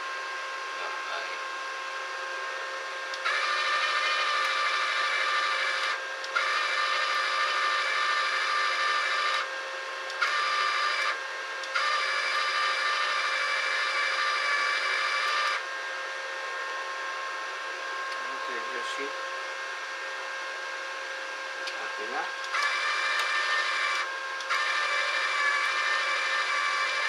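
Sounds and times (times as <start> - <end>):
wire-feed motor whine: 0.0 - 27.0
steady low hum: 12.7 - 24.5.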